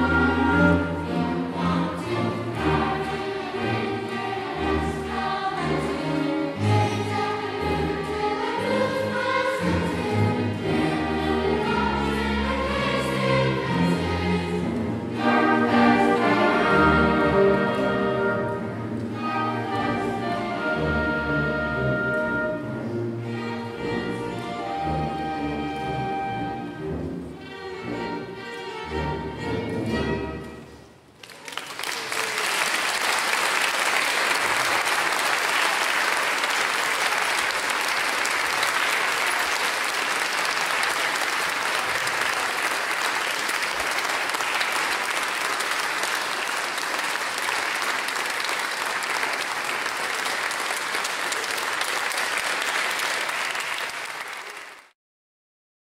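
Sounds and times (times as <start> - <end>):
audience applauding: 31.2 - 55.0.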